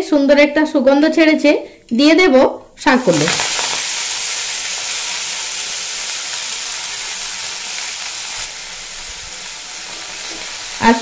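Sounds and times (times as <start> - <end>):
greens sizzling in hot oil: 2.8 - 11.0.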